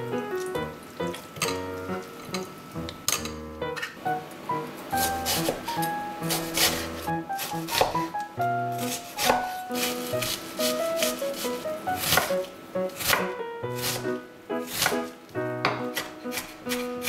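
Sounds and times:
light background music: 0:00.0 - 0:17.0
knife chopping on wooden board: 0:05.0 - 0:08.1, 0:08.8 - 0:12.4, 0:13.0 - 0:16.9.

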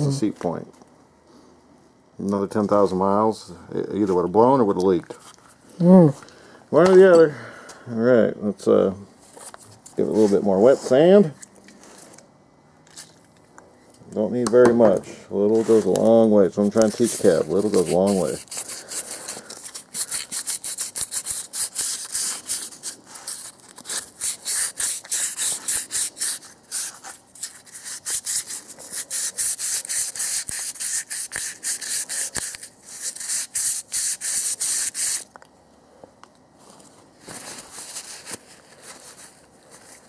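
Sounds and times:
sandpaper rubbing on metal: 0:16.6 - 0:35.2.

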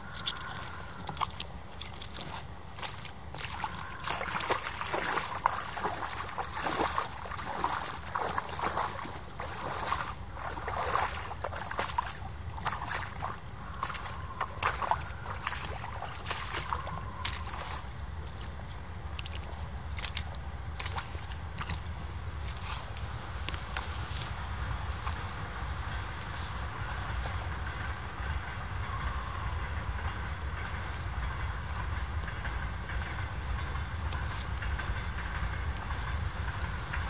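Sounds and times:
rubber boots squelching in mud: 0:00.1 - 0:23.0.

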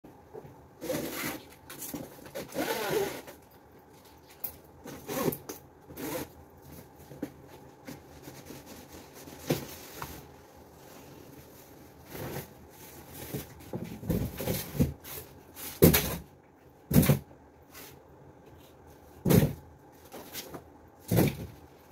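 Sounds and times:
plastic straps rasping on cardboard: 0:00.8 - 0:03.4.

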